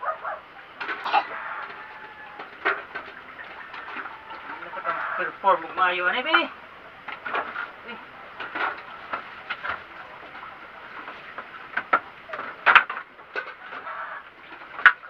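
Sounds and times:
wood knocking and clattering: 8.4 - 13.9.

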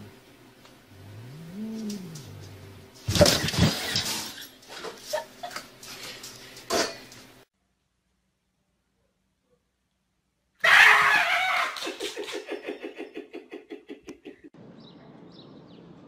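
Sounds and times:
cat yowling: 10.6 - 11.8.

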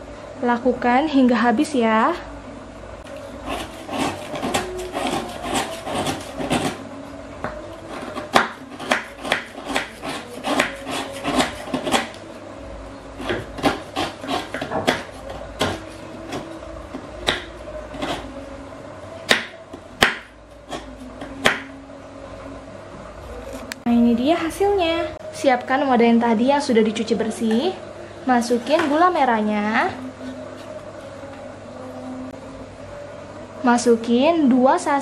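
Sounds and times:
knife scraping sugar: 3.2 - 6.8, 7.8 - 12.2, 13.2 - 16.4.

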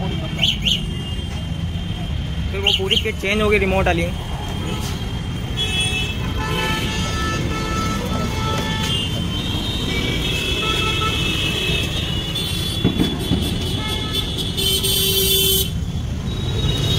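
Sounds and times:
traffic engine rumble: 0.0 - 16.9
vehicle horns: 4.6 - 16.9.

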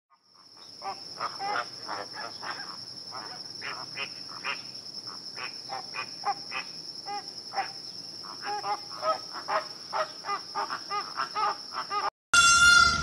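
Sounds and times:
high-pitched insect drone: 0.2 - 13.0
flamingos honking: 8.2 - 13.0.

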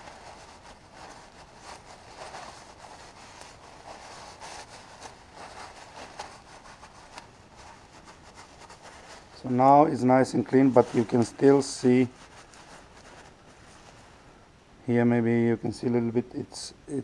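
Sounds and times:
paper towel rustling and rubbing: 0.0 - 14.3.

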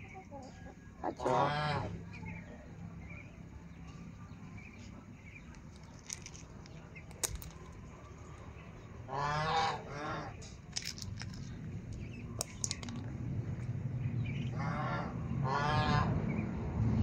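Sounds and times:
drawn-out fowl call: 0.0 - 2.1, 9.1 - 10.3.

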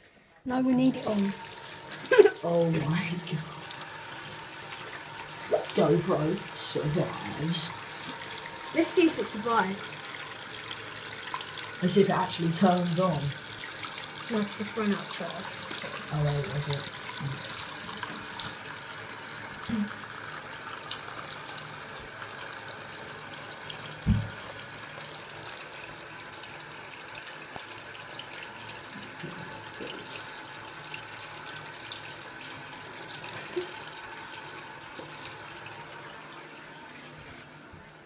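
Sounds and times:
tap running into sink: 23.7 - 24.7
dull knock: 24.0 - 24.4.

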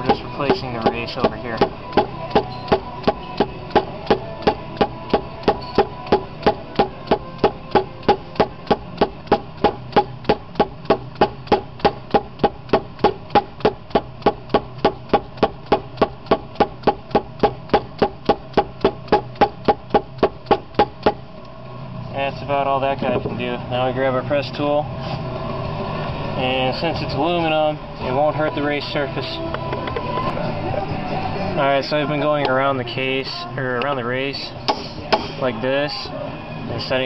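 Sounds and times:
rubber mallet tapping metal: 0.0 - 21.2.

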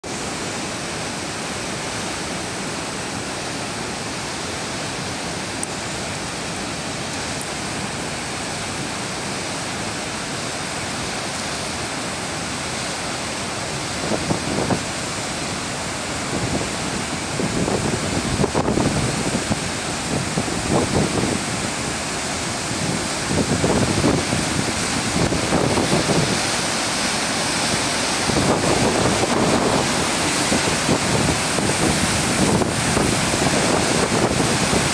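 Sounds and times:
waterfall rushing: 0.0 - 34.9
wind buffeting microphone: 16.2 - 34.9.

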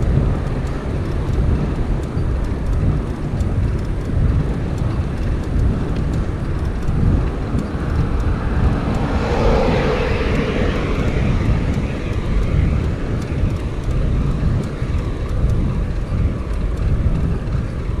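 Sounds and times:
wind rumble on microphone: 0.0 - 18.0
car passing: 5.1 - 18.0.

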